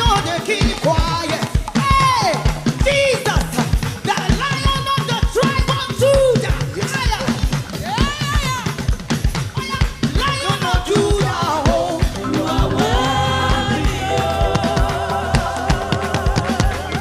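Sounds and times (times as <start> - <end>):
drum kit beat: 0.0 - 17.0
voices singing: 10.2 - 17.0
bass line: 11.9 - 16.9.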